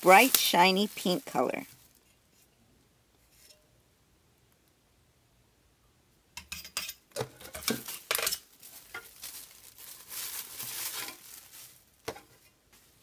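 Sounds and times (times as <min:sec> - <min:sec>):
plastic packaging crinkling: 0:00.0 - 0:02.1, 0:07.4 - 0:12.4.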